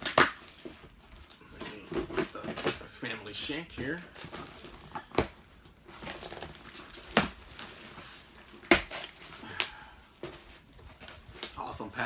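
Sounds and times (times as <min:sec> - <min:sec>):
sharp cardboard cracks: 0:00.0 - 0:00.7, 0:06.0 - 0:07.5, 0:08.5 - 0:09.8
tape ripping off cardboard box: 0:00.0 - 0:00.7, 0:06.0 - 0:09.6.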